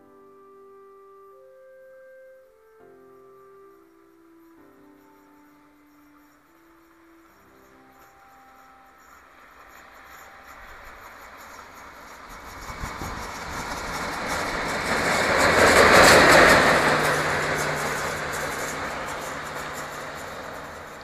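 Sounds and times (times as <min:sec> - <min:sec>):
diesel locomotive engine drone: 0:01.4 - 0:21.0.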